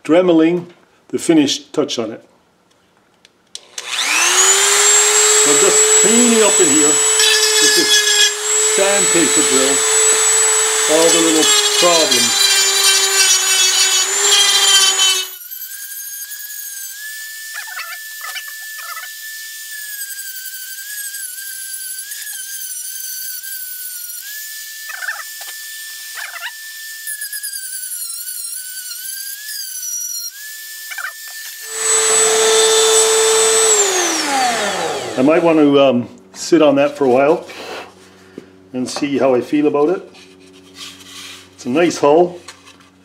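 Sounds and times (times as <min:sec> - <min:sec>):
rotary tool sanding wood: 0:03.6 - 0:35.8, 0:39.8 - 0:42.9
scratchy sanding bursts: 0:04.1 - 0:16.8.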